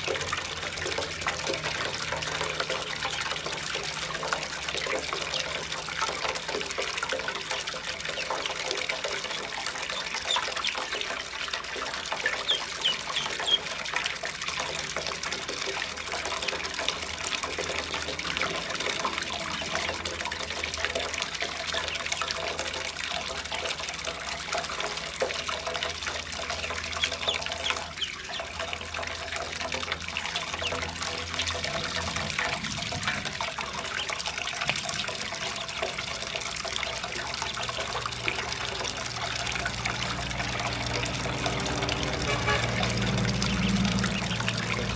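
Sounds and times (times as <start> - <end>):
water pouring into metal basin: 0.0 - 44.9
ducklings peeping: 7.4 - 14.0, 26.5 - 29.2, 30.0 - 32.4, 37.1 - 38.9, 42.3 - 44.9.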